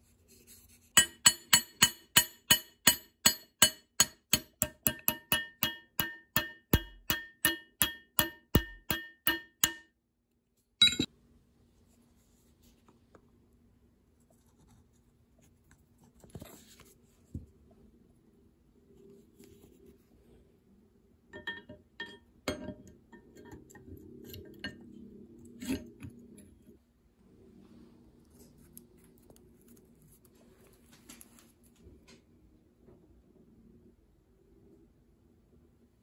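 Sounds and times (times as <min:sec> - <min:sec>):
hammer tap on steel pin: 0:01.0 - 0:09.8.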